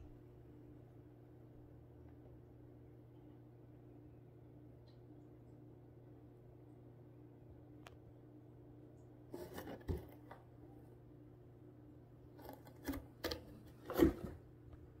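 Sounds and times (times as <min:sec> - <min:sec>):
cat scratching cardboard box: 0:09.3 - 0:10.4, 0:12.4 - 0:14.4.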